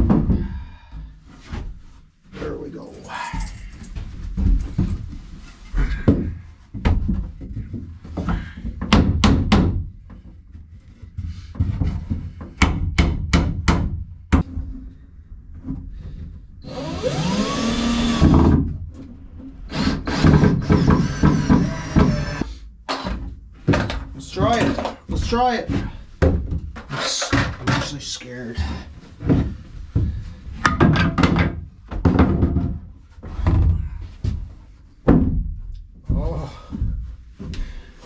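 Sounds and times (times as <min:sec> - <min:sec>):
cordless drill whirring: 0:16.6 - 0:18.3, 0:19.7 - 0:22.5.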